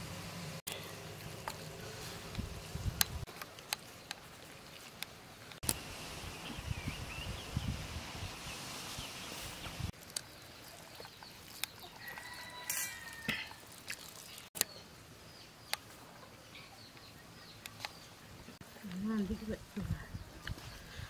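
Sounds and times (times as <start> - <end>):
small birds chirping: 6.2 - 21.0.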